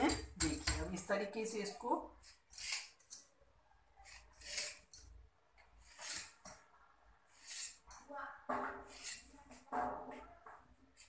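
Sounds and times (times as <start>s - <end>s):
knife scraping stone countertop: 2.2s - 3.4s, 4.0s - 6.7s, 7.3s - 9.7s.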